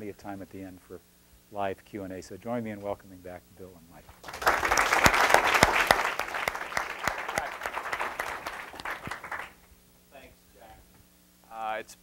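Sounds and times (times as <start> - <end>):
audience applauding: 4.2 - 9.6.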